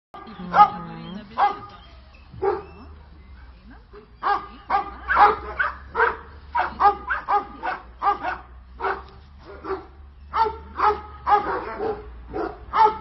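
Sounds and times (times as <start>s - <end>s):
dog barking: 0.2s - 0.8s, 1.4s - 1.8s, 2.4s - 3.0s, 4.2s - 13.0s.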